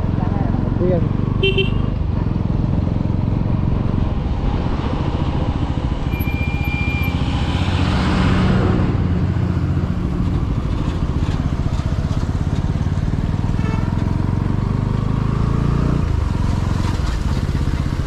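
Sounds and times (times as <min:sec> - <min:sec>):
motorcycle engine running: 0:00.0 - 0:06.0
rushing wind and road noise: 0:00.0 - 0:18.0.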